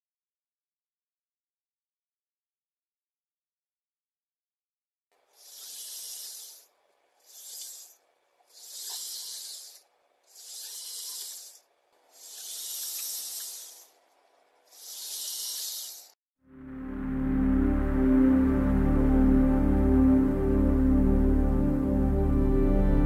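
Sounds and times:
hissing bursts: 5.3s - 16.2s.

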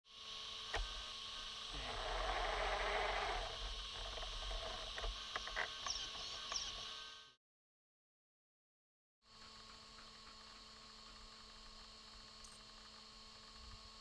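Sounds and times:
steady hiss and electrical hum: 0.1s - 7.3s.

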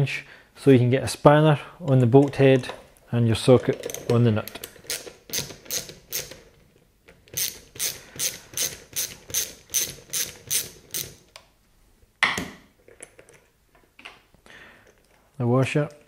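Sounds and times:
ratchet wrench clicking: 7.4s - 11.2s.

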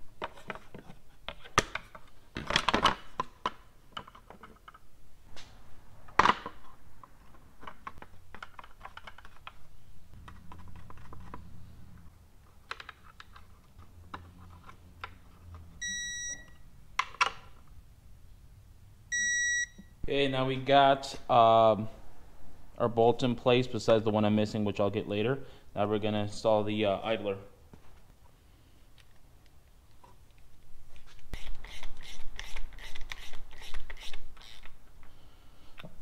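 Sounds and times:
torque wrench beep: 15.8s - 16.6s, 19.1s - 19.9s.

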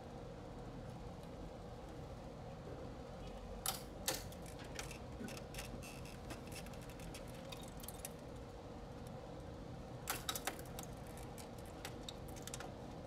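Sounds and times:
small clicks and light rattles: 3.6s - 9.2s, 10.1s - 12.8s.

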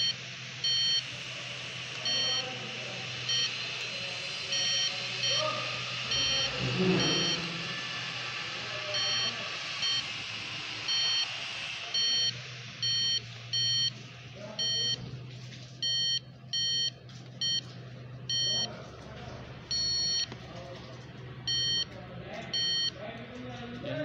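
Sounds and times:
circuit tester short beeps: 0.0s - 1.1s, 2.0s - 2.6s, 3.2s - 3.6s, 4.4s - 7.5s, 8.9s - 10.1s, 10.8s - 14.0s, 14.6s - 15.1s, 15.8s - 17.7s, 18.3s - 18.7s, 19.7s - 20.3s, 21.5s - 21.9s, 22.5s - 23.0s.

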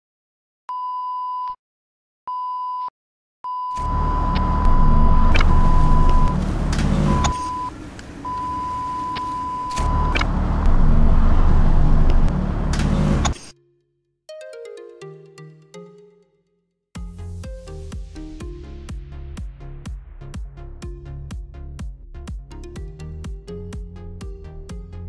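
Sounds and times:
test-pattern beep tone: 3.5s - 6.4s, 7.0s - 7.7s
loud deep noisy rumble: 4.1s - 8.0s, 9.8s - 13.4s.

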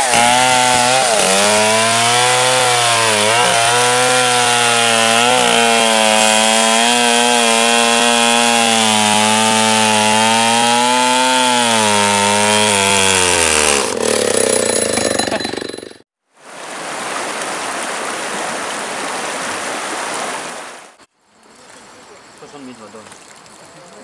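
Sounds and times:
chainsaw cutting log: 0.0s - 16.0s
river rushing over rocks: 16.4s - 20.9s.

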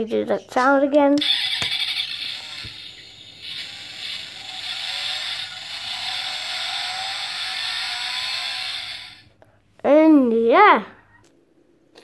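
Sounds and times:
tinny toy sound effect: 1.1s - 9.3s.

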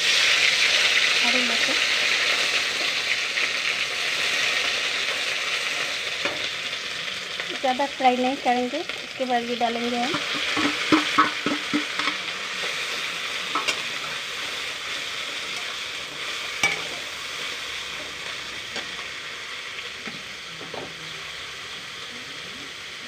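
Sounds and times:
paste sizzling in oil: 0.0s - 23.0s
spatula tapping pan: 10.1s - 12.2s, 16.6s - 17.0s.

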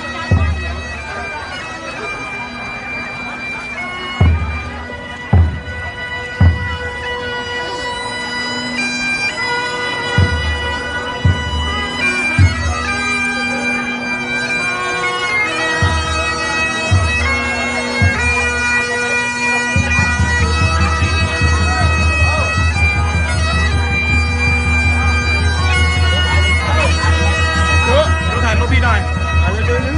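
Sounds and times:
bagpipes playing: 0.0s - 29.9s
drum beats: 4.2s - 7.3s, 10.0s - 12.8s.

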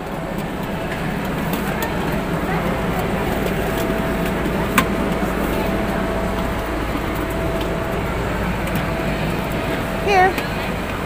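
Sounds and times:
faint steady hum: 0.0s - 11.0s
plastic wheels rumbling on tiles: 0.0s - 11.0s.

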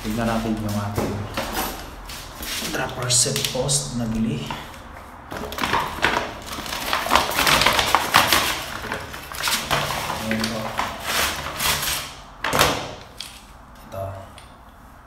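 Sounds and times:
plastic bag crinkling: 5.4s - 12.2s.

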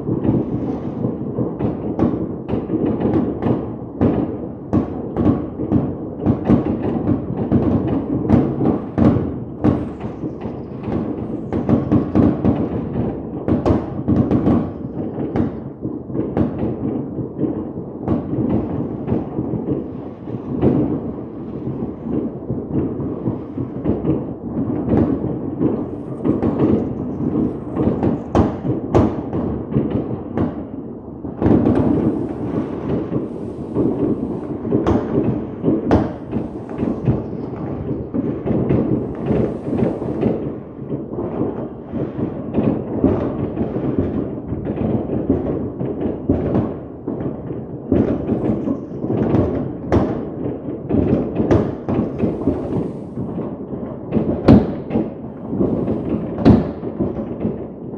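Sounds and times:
fireworks bangs and crackles: 0.0s - 57.9s
fireworks booms: 0.0s - 57.9s.

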